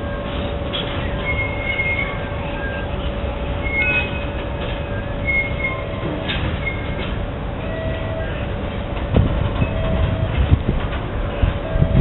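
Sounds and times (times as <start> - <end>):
wheel squeals: 0.0 - 8.5
freight train rumble: 0.0 - 12.0
train knocks: 0.0 - 12.0.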